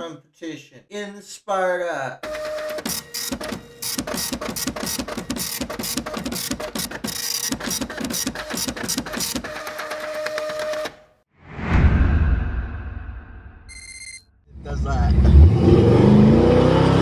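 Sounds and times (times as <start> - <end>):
rapid mechanical clicking: 2.2 - 10.0.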